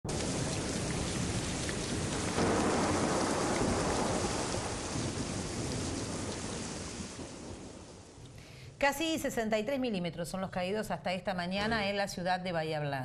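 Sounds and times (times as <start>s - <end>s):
rain pouring: 0.0s - 8.8s
thunder rumbling: 0.1s - 8.3s.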